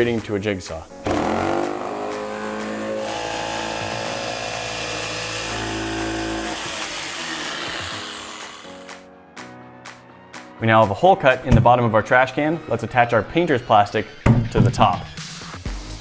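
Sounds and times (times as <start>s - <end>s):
jigsaw cutting plastic: 1.1s - 8.9s.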